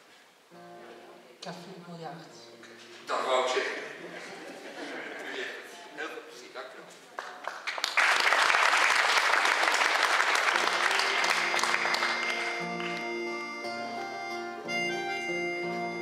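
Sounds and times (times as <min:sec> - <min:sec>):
acoustic guitars playing chords: 0:00.0 - 0:05.8, 0:10.3 - 0:16.0
applause: 0:07.1 - 0:13.3
accordion: 0:10.6 - 0:16.0.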